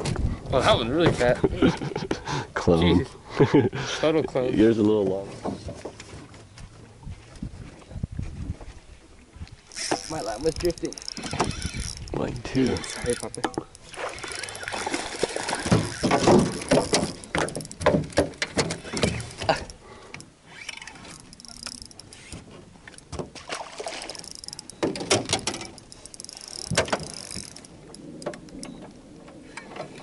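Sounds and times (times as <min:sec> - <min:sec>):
knocks and clatter in metal boat: 0:14.8 - 0:19.6, 0:24.4 - 0:25.8.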